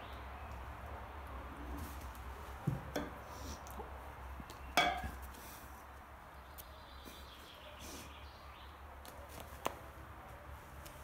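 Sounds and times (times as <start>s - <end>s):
metal bowl clinking on tile: 4.8s - 5.1s.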